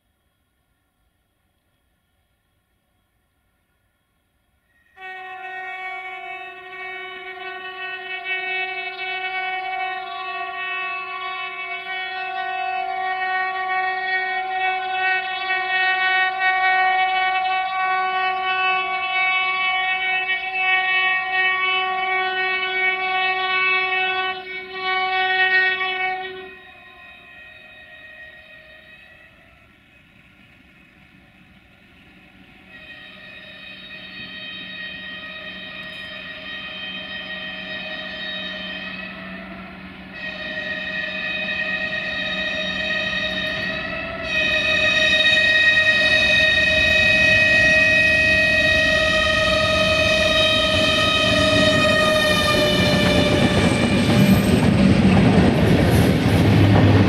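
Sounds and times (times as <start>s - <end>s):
train horn blast: 4.7s - 30.0s, 32.5s - 54.7s
locomotive engine rumble: 34.0s - 57.0s.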